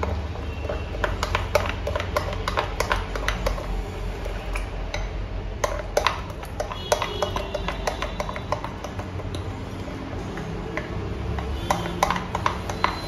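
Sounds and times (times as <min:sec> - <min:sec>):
spoon scraping a glass bowl: 0:05.7 - 0:13.0.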